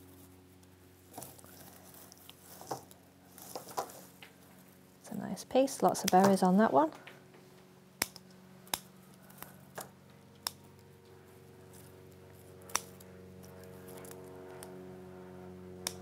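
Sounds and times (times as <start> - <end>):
faint steady hum: 0.0 - 16.0
scissors snipping stems: 5.8 - 6.5, 8.0 - 11.0, 11.7 - 14.8, 15.8 - 16.0.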